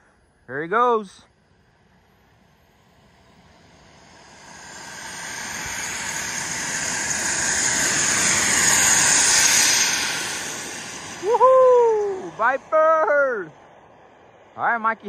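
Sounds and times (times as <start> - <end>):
model jet engine rush: 0.2 - 15.0.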